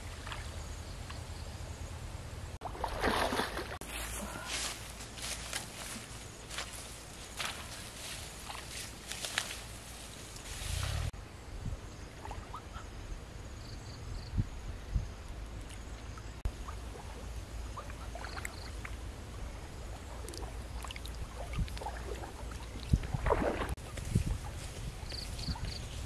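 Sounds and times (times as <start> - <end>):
duck splashing in water: 2.6 - 3.8
rustling through tall grass: 3.8 - 11.2, 23.3 - 26.0
wind on microphone rumble: 10.4 - 12.6, 14.0 - 15.6, 16.5 - 26.0.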